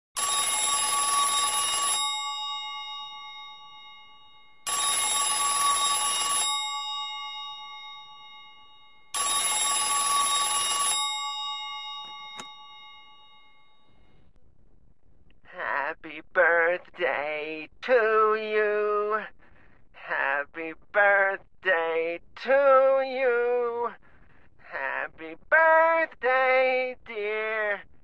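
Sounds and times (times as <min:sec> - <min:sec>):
telephone ringing: 0:00.2 - 0:14.2.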